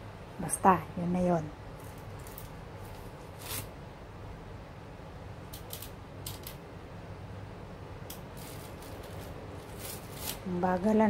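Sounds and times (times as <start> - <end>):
low steady hum: 0.0 - 11.0
packaging rustling and scraping: 1.8 - 3.7, 8.3 - 10.5.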